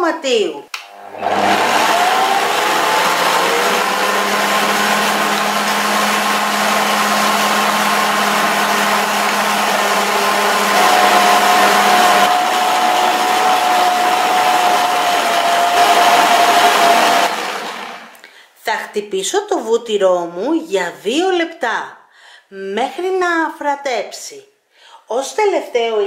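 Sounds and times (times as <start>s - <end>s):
stand mixer whisking: 1.0s - 18.2s.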